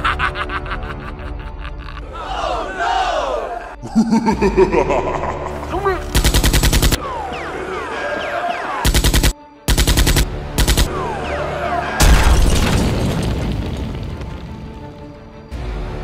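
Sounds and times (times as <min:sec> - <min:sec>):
background music: 0:00.0 - 0:16.0
machine-gun fire: 0:06.1 - 0:07.0, 0:08.8 - 0:10.9.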